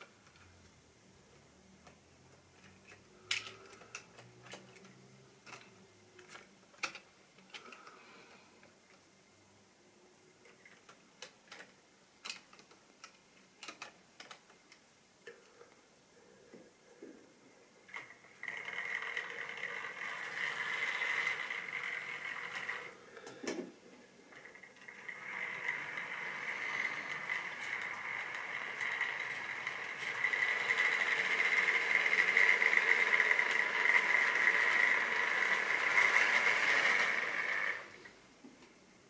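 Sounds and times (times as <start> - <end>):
model train motor whine: 17.9 - 23.3, 24.3 - 38.1.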